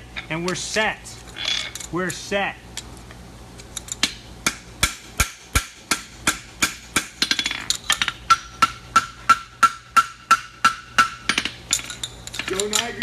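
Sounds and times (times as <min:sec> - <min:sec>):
hammer striking metal on anvil: 0:04.0 - 0:07.5, 0:08.3 - 0:11.6.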